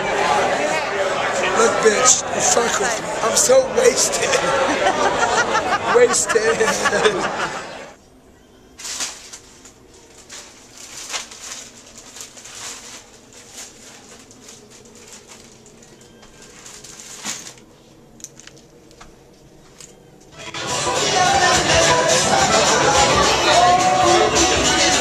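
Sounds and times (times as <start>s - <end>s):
faint low hum: 0.0s - 20.4s
soft rustling: 8.8s - 20.0s.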